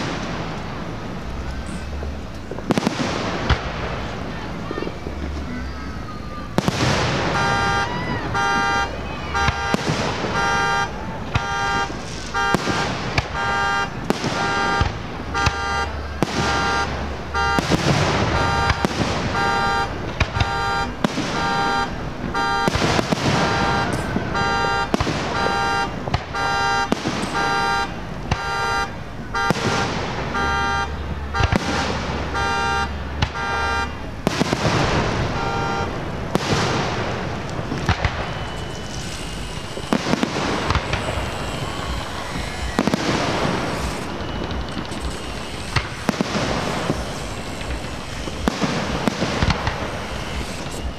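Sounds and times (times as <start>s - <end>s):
fireworks bursting and crackling: 0.0s - 50.9s
car alarm short beeps: 7.2s - 34.1s, 35.2s - 36.0s, 38.0s - 50.9s.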